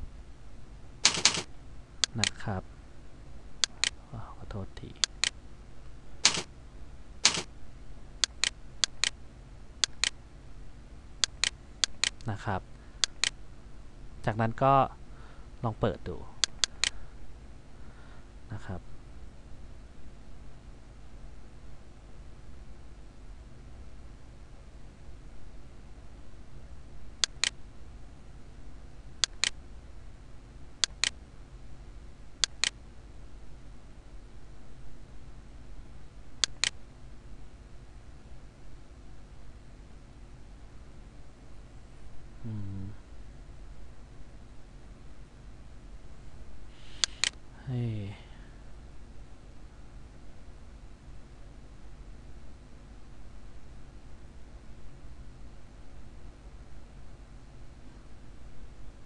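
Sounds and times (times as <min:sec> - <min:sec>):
steady low hum: 0:00.0 - 0:59.0
mouse button clicking: 0:47.0 - 0:47.4.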